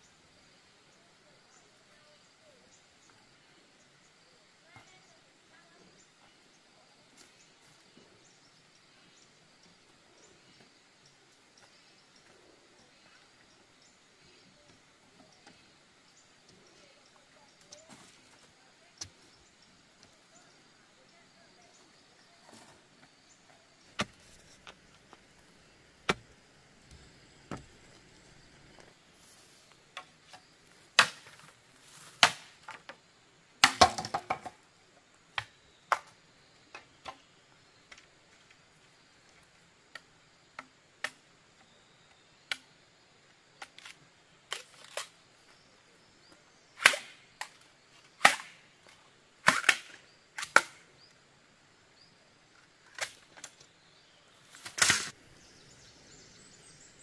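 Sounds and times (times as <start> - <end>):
bamboo poles knocking: 26.1 - 26.3, 33.6 - 34.6.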